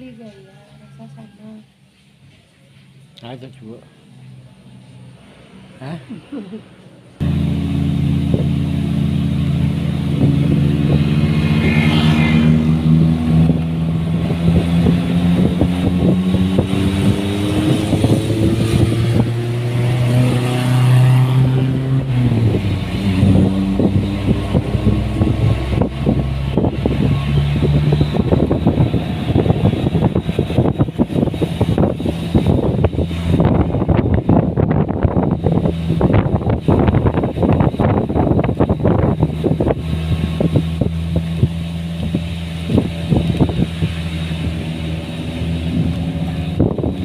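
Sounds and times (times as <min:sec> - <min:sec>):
vehicle engine running: 0:00.0 - 0:47.0
wind buffeting microphone: 0:07.2 - 0:47.0.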